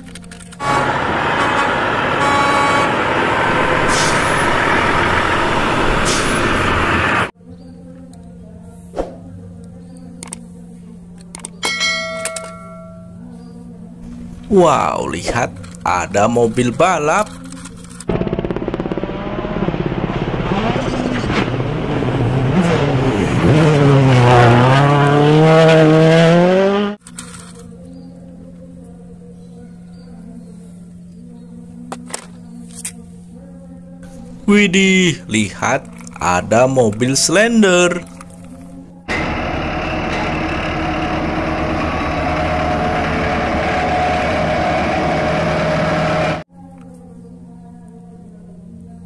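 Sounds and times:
rally car engine at full throttle: 0.5s - 7.3s, 18.0s - 27.0s, 39.1s - 46.5s.

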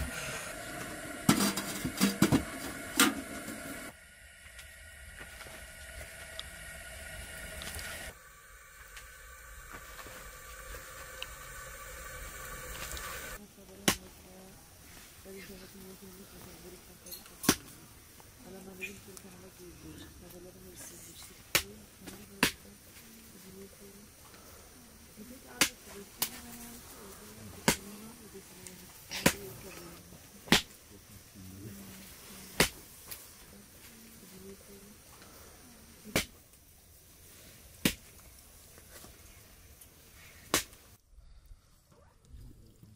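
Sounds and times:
wood fire hissing and crackling: 0.0s - 42.9s
loud sharp snap: 30.5s - 30.8s, 32.6s - 32.8s, 40.5s - 40.8s.

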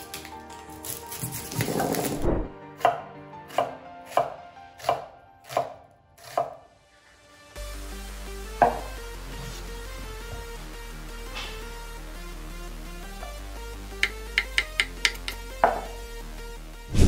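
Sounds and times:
knife chopping on wooden board: 2.8s - 6.6s, 8.6s - 9.0s, 14.0s - 16.0s.

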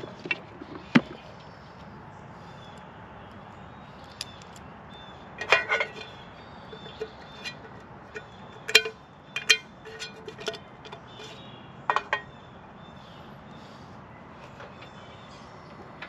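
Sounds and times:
pan handle clipping on and off: 5.4s - 6.1s, 6.8s - 11.0s.

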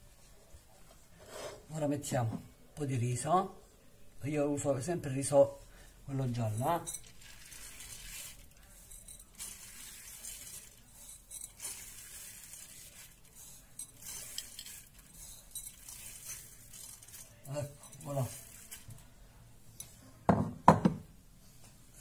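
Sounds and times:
rice grains pattering: 6.2s - 19.2s.

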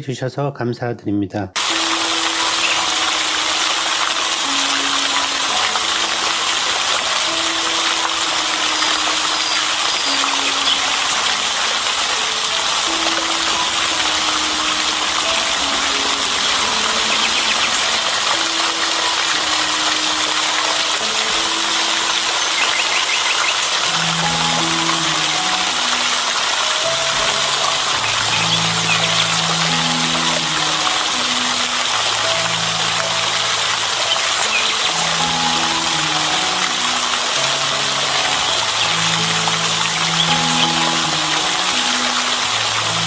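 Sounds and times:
fountain water splashing: 1.6s - 43.0s
soft slow background music: 1.6s - 43.0s.

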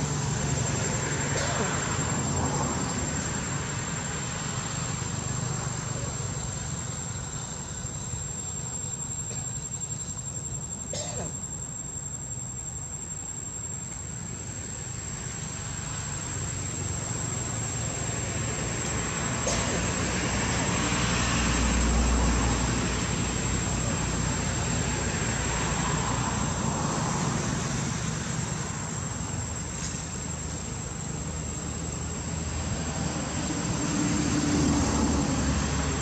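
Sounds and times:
insect drone: 0.0s - 36.0s.

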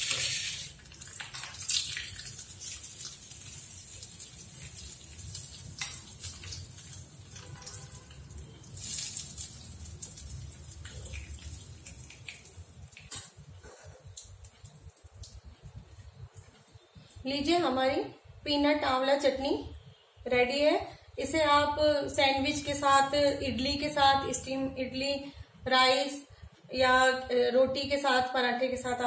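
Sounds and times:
hot oil sizzling: 0.0s - 16.4s.

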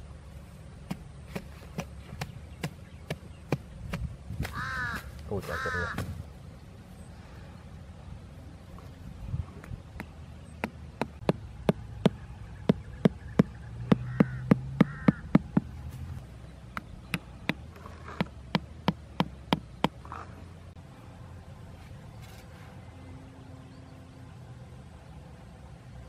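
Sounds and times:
hammer knocking wooden stake: 9.6s - 15.8s, 16.7s - 20.0s.

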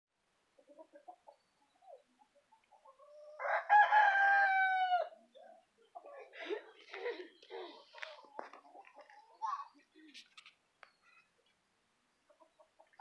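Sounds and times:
faint chicken clucks: 0.3s - 13.0s
rooster crowing: 3.4s - 5.2s.

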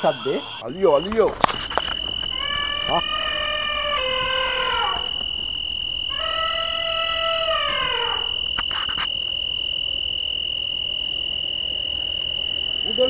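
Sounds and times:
insects droning: 0.0s - 13.0s
elephant trumpeting: 2.3s - 5.2s, 6.1s - 8.4s.

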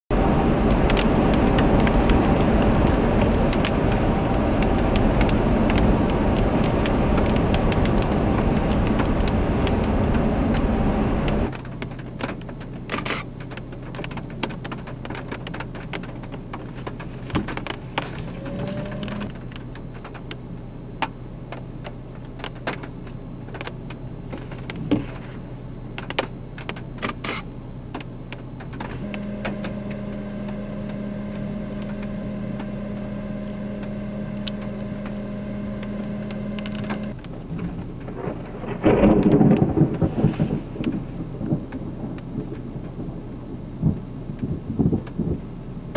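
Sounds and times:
steady high whine: 0.1s - 11.6s, 17.8s - 39.8s
low hum inside car: 0.1s - 45.9s
tyre and road noise on wet road: 0.1s - 45.9s
raindrops ticking on glass: 0.6s - 10.7s.

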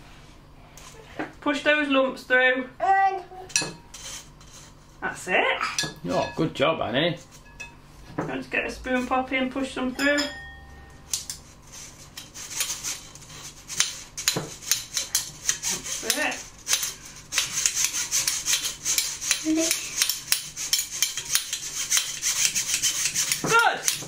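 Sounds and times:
metal spoon scraping a sieve: 3.5s - 5.0s, 10.9s - 24.0s.

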